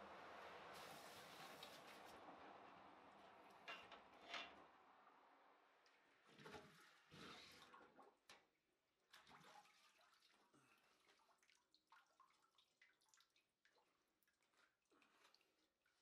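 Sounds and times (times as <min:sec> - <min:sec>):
water dripping and trickling: 0:00.1 - 0:16.0
liquid sloshing in a barrel: 0:06.0 - 0:16.0.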